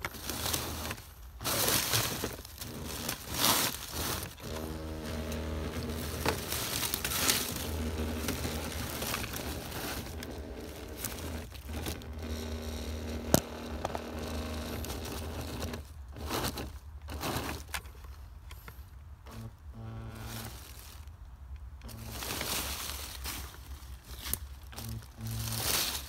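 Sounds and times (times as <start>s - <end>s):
dry leaves crunching: 0.0s - 26.0s
rc truck motor whine: 4.0s - 16.7s, 19.3s - 20.7s, 21.8s - 22.5s, 24.7s - 26.0s.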